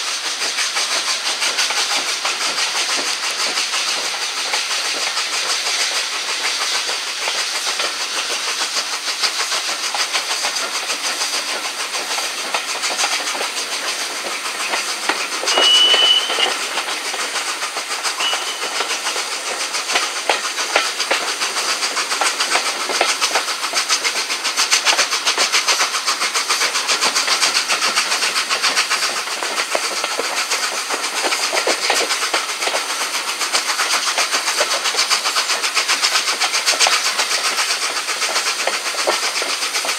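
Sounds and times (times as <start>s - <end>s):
exhaust and wheels beating on rails: 0.0s - 39.9s
steam train running and wind noise: 0.0s - 39.9s
high squeal: 15.4s - 17.4s, 18.1s - 19.2s.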